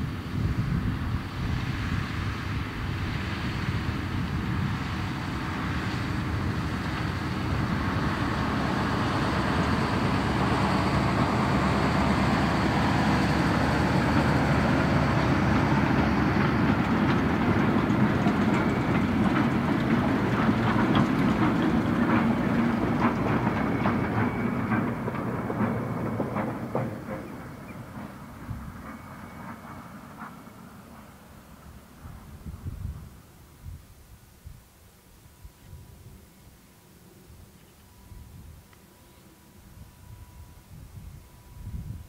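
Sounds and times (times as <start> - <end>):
diesel train rumbling by: 0.0 - 42.0
wheels clicking over rail joints: 4.4 - 32.9.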